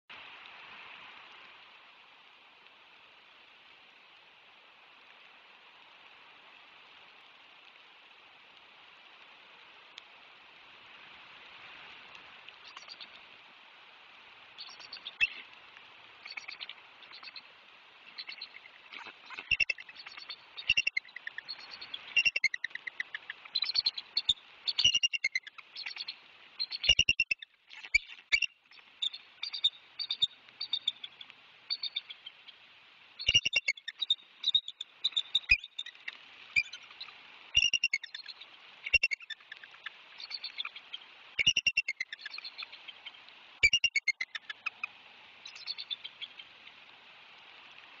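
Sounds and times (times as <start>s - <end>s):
rain hiss: 0.1s - 48.0s
eagles chattering whistles: 18.1s - 28.5s, 33.2s - 40.8s, 41.4s - 42.7s, 43.6s - 44.8s.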